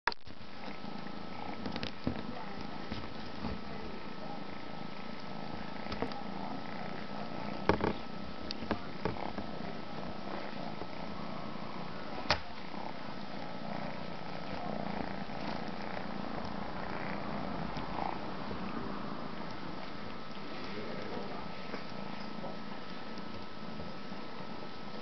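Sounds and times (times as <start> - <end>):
cat purring: 0.4 - 25.0.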